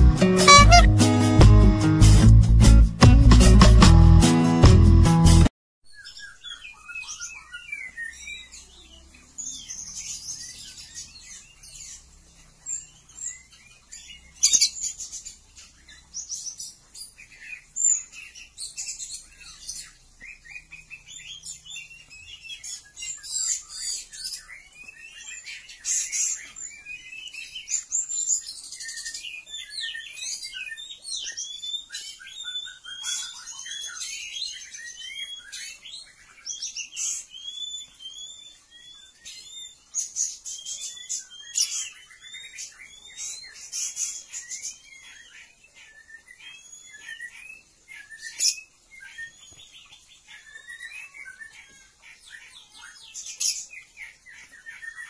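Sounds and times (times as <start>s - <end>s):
bird song whistles and chirps: 0.4s - 0.9s, 5.9s - 55.0s.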